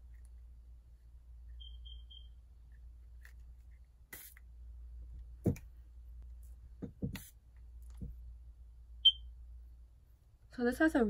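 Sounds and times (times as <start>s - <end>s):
plastic bottle clicks and knocks: 5.4s - 5.7s.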